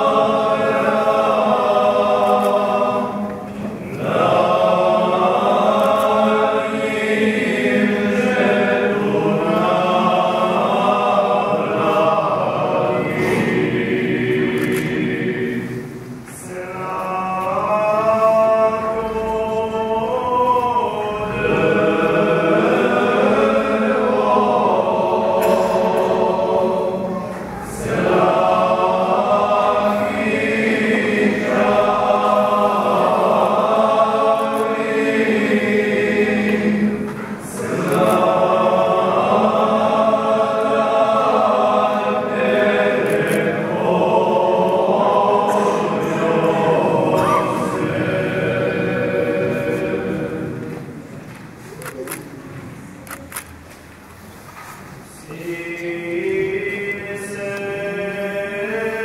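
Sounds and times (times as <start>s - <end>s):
choir singing a chant: 0.0s - 51.2s, 55.0s - 59.0s.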